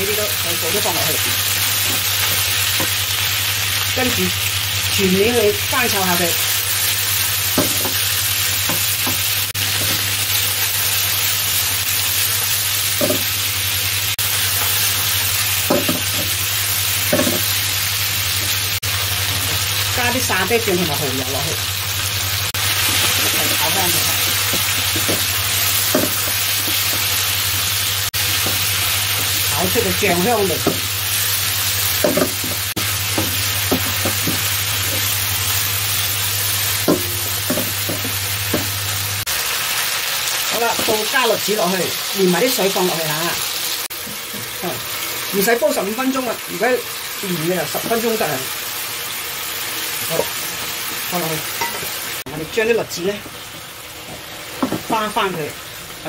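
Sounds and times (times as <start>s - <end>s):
food sizzling in a wok: 0.0s - 56.0s
spatula knocking and scraping pan: 7.5s - 10.2s, 13.0s - 13.3s, 15.6s - 16.4s, 17.1s - 17.6s, 22.8s - 27.2s, 28.3s - 29.4s, 30.2s - 30.9s, 32.0s - 35.2s, 36.8s - 38.8s.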